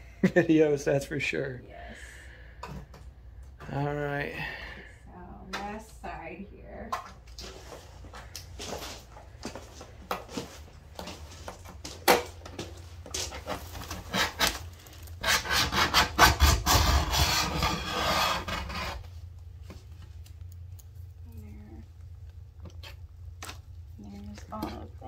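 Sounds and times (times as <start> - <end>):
razor scraper scraping paint off glass: 15.2 - 19.0.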